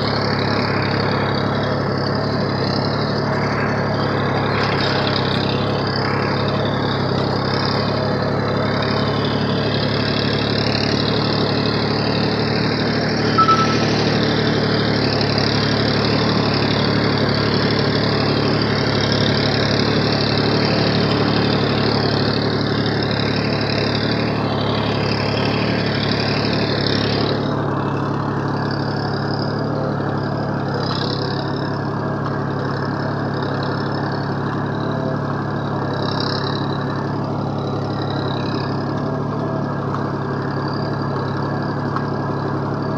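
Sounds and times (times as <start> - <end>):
tractor diesel engine running: 0.0 - 42.9
short metallic clink: 13.3 - 14.0.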